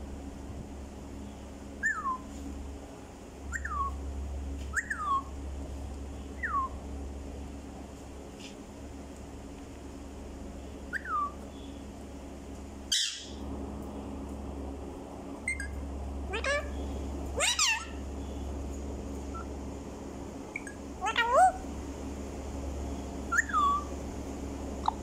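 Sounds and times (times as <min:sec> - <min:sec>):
steady low hum: 0:00.0 - 0:25.0
parakeets whistling calls: 0:01.8 - 0:02.3, 0:03.5 - 0:04.0, 0:04.7 - 0:05.3, 0:06.4 - 0:06.8, 0:10.9 - 0:11.4, 0:12.9 - 0:13.4, 0:15.4 - 0:18.0, 0:20.5 - 0:21.6, 0:23.3 - 0:23.9.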